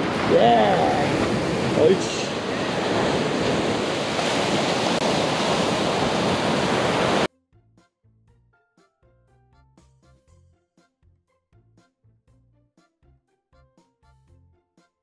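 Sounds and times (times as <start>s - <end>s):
surf rushing: 0.0s - 7.3s
wind buffeting microphone: 0.0s - 7.3s.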